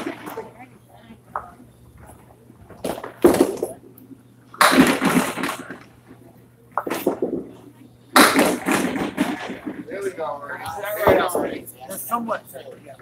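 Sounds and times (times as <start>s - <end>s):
bowling balls striking wooden pins: 2.7s - 3.9s, 4.6s - 5.9s, 6.8s - 7.6s.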